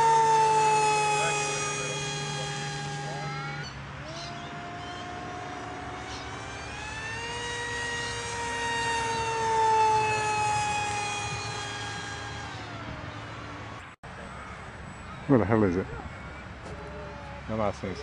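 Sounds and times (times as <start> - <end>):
model plane motor whining: 0.0 - 13.9.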